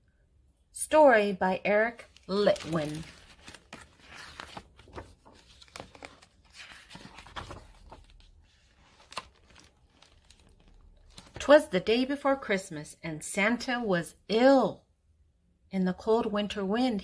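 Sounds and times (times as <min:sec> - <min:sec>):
paper pages rustling: 0:02.0 - 0:11.6.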